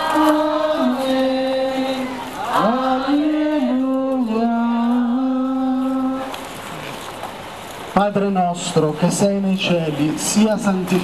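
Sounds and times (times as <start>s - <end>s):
slow religious chant: 0.0s - 6.6s.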